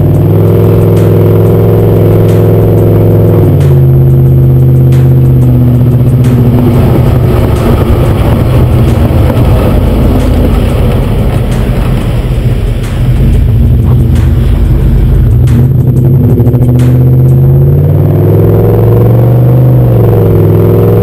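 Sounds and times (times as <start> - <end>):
road noise: 0.0 - 21.0
truck exhaust rumble: 0.0 - 21.0.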